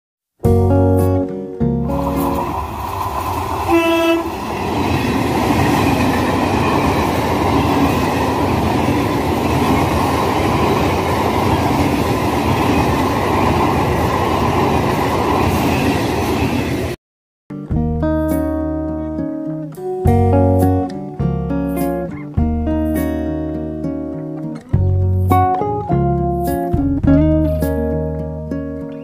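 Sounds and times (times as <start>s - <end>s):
train wheels rumbling on rails: 1.9s - 17.0s
train horn blast: 3.6s - 4.6s.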